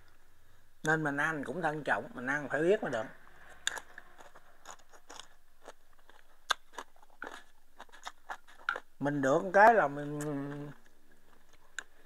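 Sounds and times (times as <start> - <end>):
chewing and crunching food: 2.9 - 12.0.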